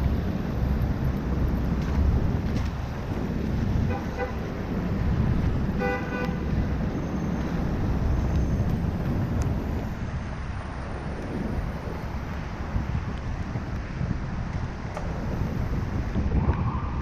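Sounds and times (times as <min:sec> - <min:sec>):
street traffic: 0:00.0 - 0:17.0
wind on microphone: 0:00.0 - 0:17.0
vehicle horn honking: 0:03.8 - 0:04.4, 0:05.8 - 0:06.4.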